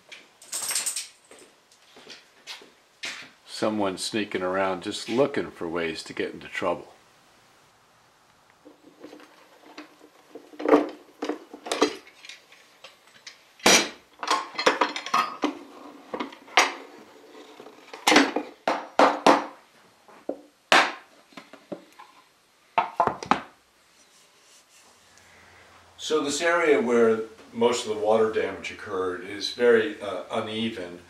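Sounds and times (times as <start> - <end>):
metal clamps clanking on wood: 9.0 - 15.6.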